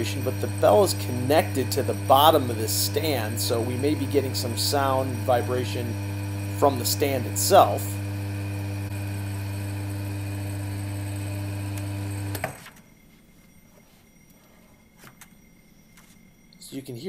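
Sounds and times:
vacuum pump motor humming: 0.0 - 12.7.

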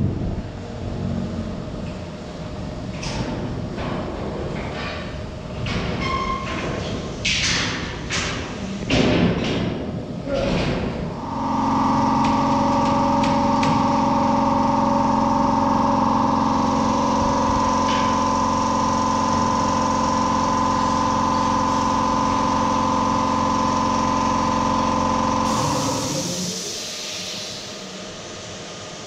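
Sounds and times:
shop machinery humming: 0.0 - 29.0
brief high hiss: 25.5 - 27.7.

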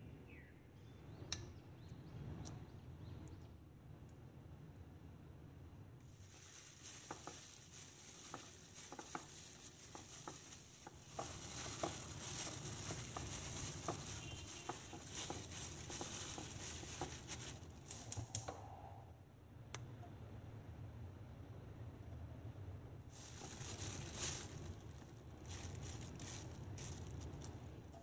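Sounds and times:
plastic glove crinkling: 6.0 - 18.4, 23.1 - 28.0.

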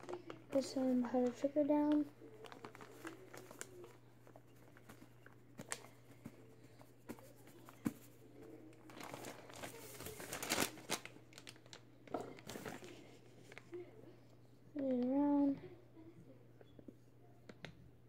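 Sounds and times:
plastic bag crinkling: 0.0 - 8.1, 8.7 - 13.7.

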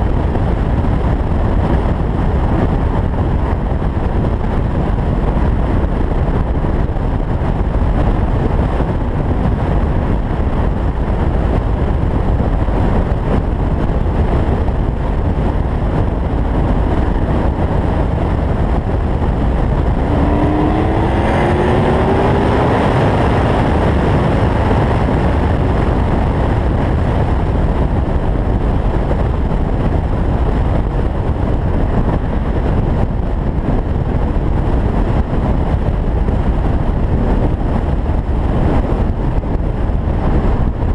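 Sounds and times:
wind and road rush: 0.0 - 40.9
car engine accelerating: 15.0 - 27.4.

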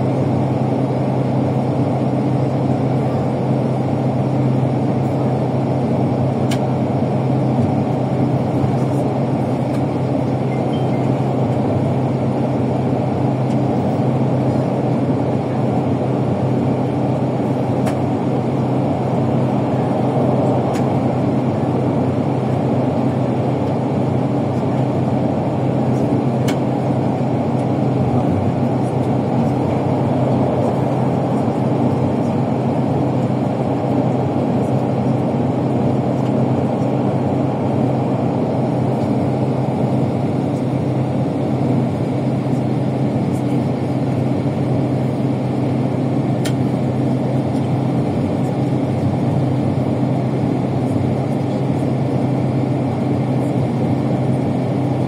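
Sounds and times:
coach engine drone: 0.0 - 55.0
road noise: 14.5 - 40.2.

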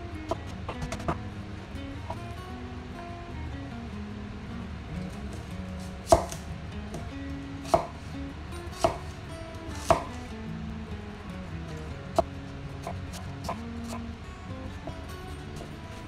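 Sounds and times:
faint background music: 0.0 - 16.0
knife hitting cutting board: 6.0 - 6.4, 7.7 - 8.1, 8.8 - 9.1, 9.8 - 10.2.

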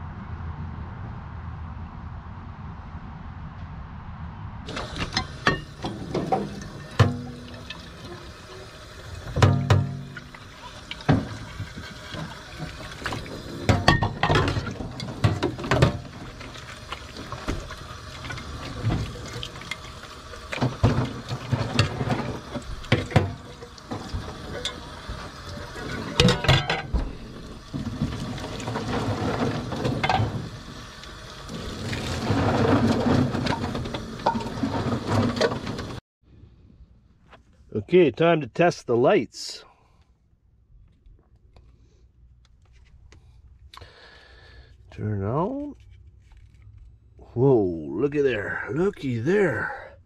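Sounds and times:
dishes clattering against sink: 4.7 - 16.3, 20.5 - 30.5, 33.0 - 35.9
tap water splashing into sink: 4.7 - 28.8.

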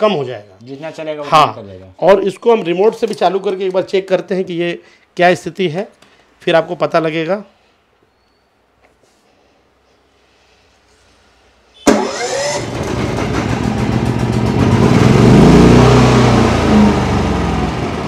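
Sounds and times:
generator engine starting and running: 11.8 - 18.0.

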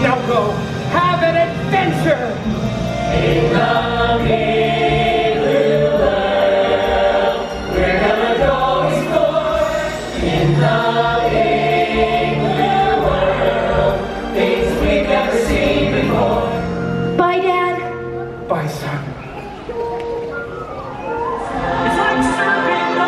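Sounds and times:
group singing with orchestra: 2.0 - 17.2, 21.1 - 23.0.

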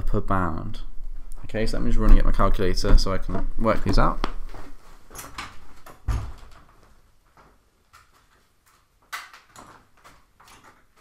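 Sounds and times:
door thudding shut: 6.0 - 6.5.

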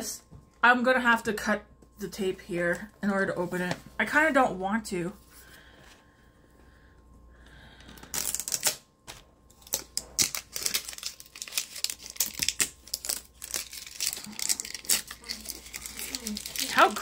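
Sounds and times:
plastic wrapping crinkling and tearing: 8.0 - 8.9, 9.5 - 17.0.

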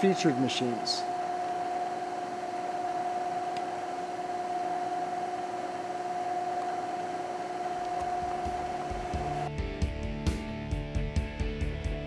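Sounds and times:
mid-pitched whine: 0.0 - 9.6
steady hum: 0.0 - 9.6.

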